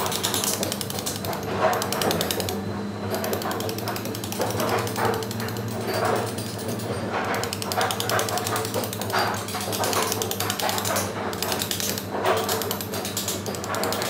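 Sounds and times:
pneumatic chisel chattering on stone: 0:00.0 - 0:14.0.

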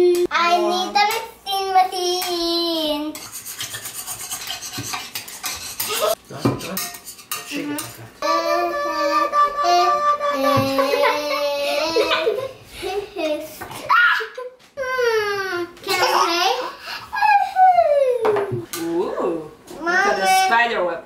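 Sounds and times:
sticks stirring shaving cream: 0:03.1 - 0:08.0
child singing: 0:08.2 - 0:11.8.

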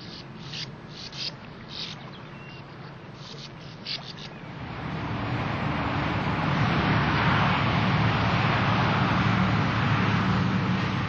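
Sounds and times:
road traffic rushing: 0:03.0 - 0:11.0
low engine drone: 0:04.3 - 0:11.0.

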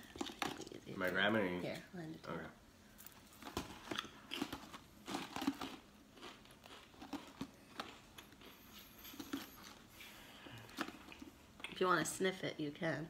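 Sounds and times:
potato crisp crunching: 0:03.4 - 0:08.5.

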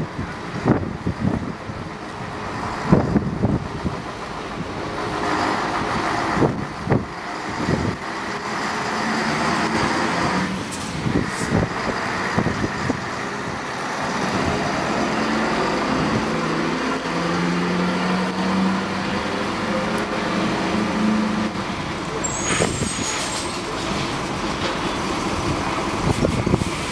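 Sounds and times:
diesel truck engine running: 0:00.0 - 0:26.9.

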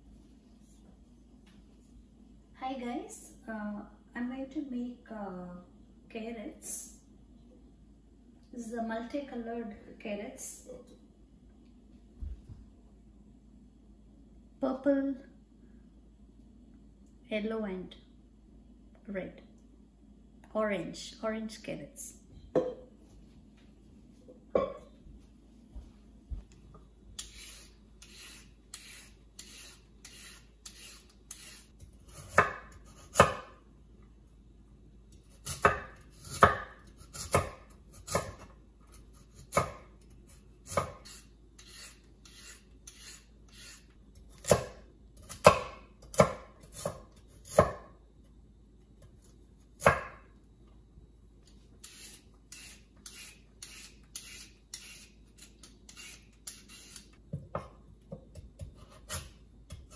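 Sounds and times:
peeler scraping carrots: 0:27.2 - 0:33.2, 0:40.3 - 0:44.5, 0:51.8 - 0:57.2
knife chopping on wooden board: 0:32.1 - 0:33.5, 0:35.4 - 0:38.5, 0:39.3 - 0:39.8, 0:40.7 - 0:41.0, 0:44.4 - 0:47.9, 0:49.8 - 0:50.2.

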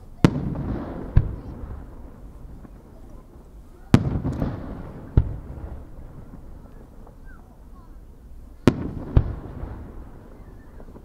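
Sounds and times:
firework shells bursting: 0:00.2 - 0:07.4
rumbling echo: 0:00.2 - 0:11.0.

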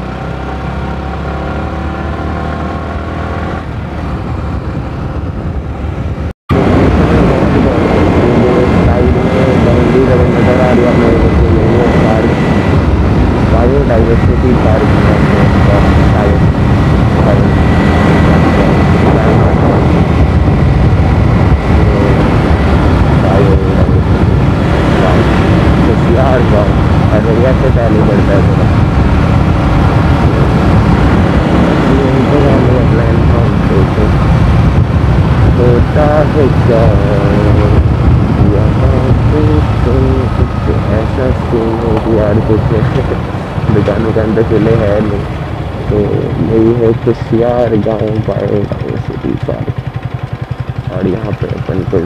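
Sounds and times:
even rushing noise: 0:00.0 - 0:52.0
motorcycle engine cruising: 0:00.0 - 0:52.0
faint steady whine: 0:03.5 - 0:52.0.

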